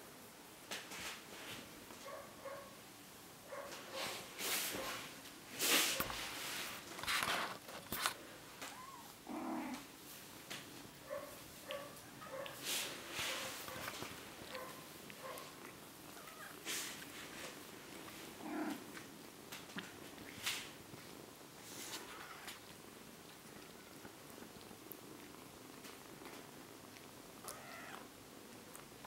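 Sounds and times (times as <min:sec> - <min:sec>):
kittens rustling on a blanket: 0:00.6 - 0:02.5, 0:03.5 - 0:28.1
cats purring: 0:00.8 - 0:29.0.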